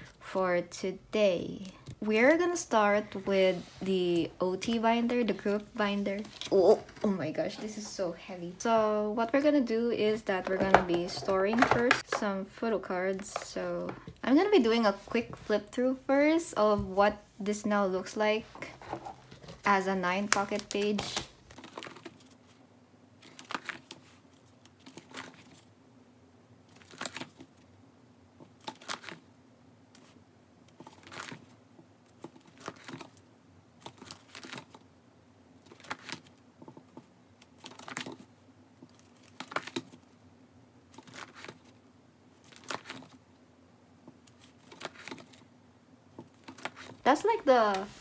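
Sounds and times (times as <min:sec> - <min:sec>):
faint steady hum: 0:00.0 - 0:48.0
plastic pages crinkling: 0:18.6 - 0:22.6, 0:23.2 - 0:25.7, 0:26.7 - 0:27.6, 0:28.6 - 0:29.3, 0:30.8 - 0:33.2, 0:33.8 - 0:34.8, 0:35.6 - 0:36.4, 0:37.4 - 0:40.1, 0:40.9 - 0:41.8, 0:42.4 - 0:43.2, 0:44.3 - 0:45.5, 0:46.2 - 0:48.0.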